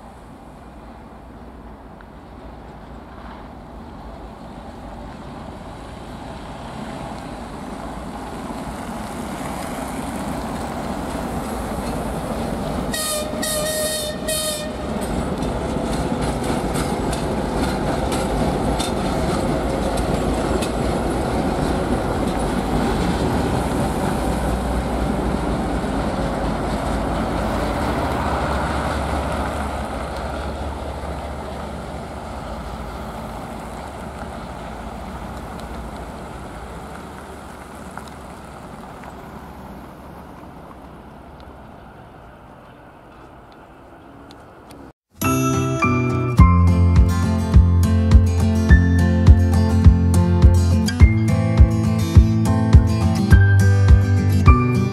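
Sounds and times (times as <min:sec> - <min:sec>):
diesel locomotive engines: 0:00.0 - 0:54.9
wheels clicking over rail joints: 0:01.6 - 0:44.9
train horn blasts: 0:12.9 - 0:15.1.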